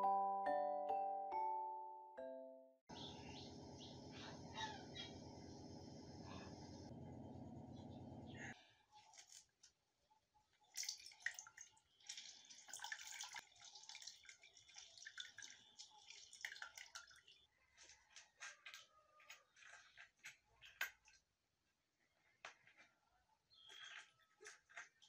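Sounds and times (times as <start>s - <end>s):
juice dripping: 10.6s - 18.0s.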